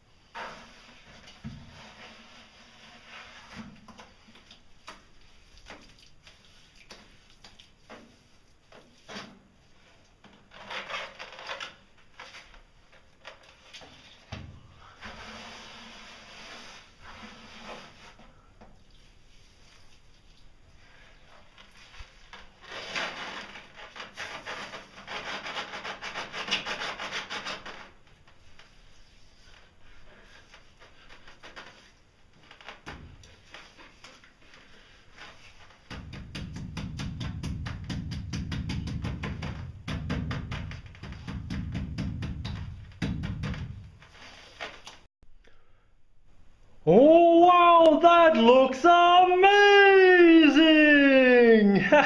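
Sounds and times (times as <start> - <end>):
hand scrubbing mortar on tiles: 14.9 - 20.5.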